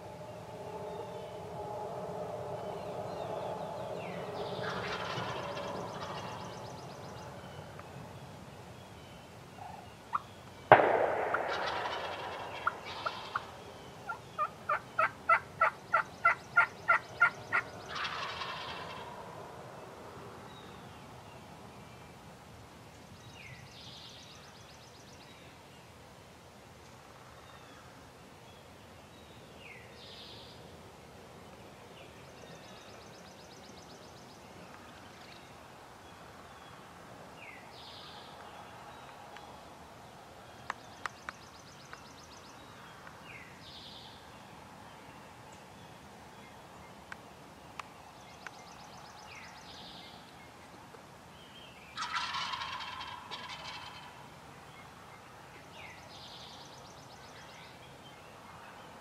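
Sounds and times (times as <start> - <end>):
turkey gobbling: 4.6 - 6.3, 11.5 - 13.5, 14.1 - 19.0, 52.0 - 54.2.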